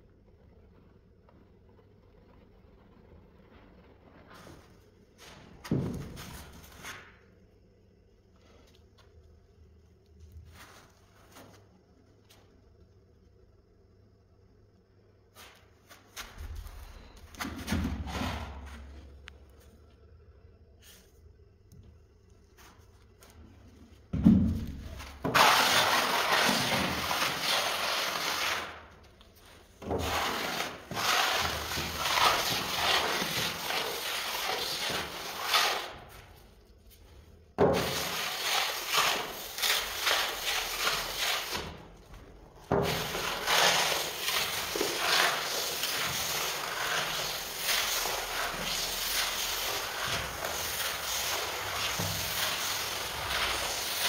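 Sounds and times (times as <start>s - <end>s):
spatula scraping wooden floor: 22.6s - 37.0s, 37.6s - 54.0s.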